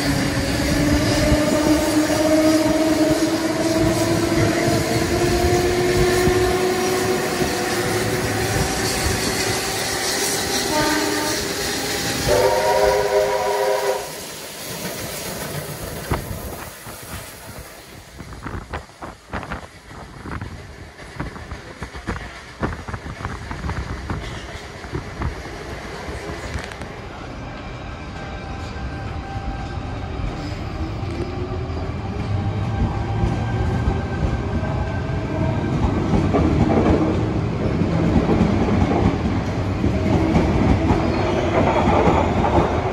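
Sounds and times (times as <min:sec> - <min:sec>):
train chord whistle: 0:09.0 - 0:14.4
train wheels clicking over rail joints: 0:14.3 - 0:26.9, 0:35.7 - 0:42.9.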